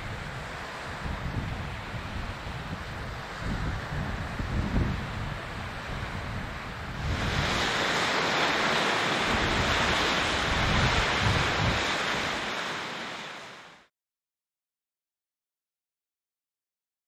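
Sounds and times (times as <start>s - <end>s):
wind buffeting microphone: 0.0s - 13.5s
sea waves washing ashore: 0.0s - 13.9s.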